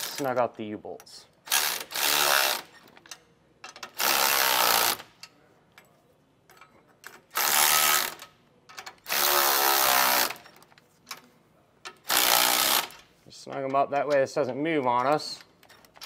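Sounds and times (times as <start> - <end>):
power tool driving nuts: 1.5 - 2.8, 3.7 - 5.1, 7.3 - 8.3, 9.0 - 10.5, 12.0 - 13.0.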